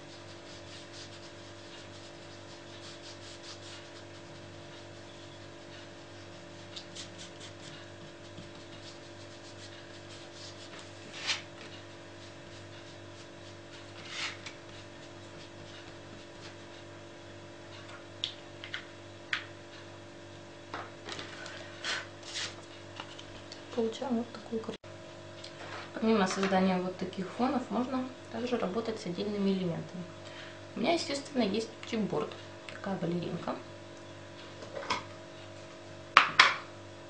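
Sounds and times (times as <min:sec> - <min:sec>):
steady low hum: 0:00.0 - 0:37.0
pad scratching across card: 0:14.0 - 0:14.5.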